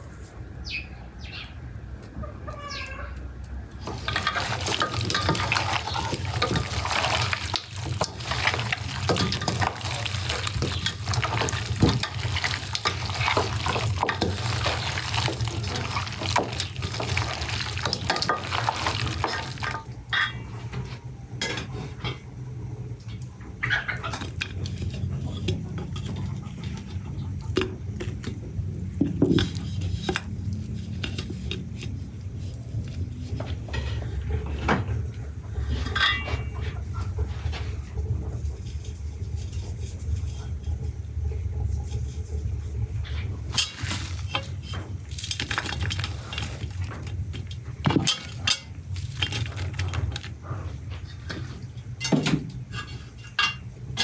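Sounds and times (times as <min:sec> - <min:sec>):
water splashing and running: 0:03.8 - 0:19.9.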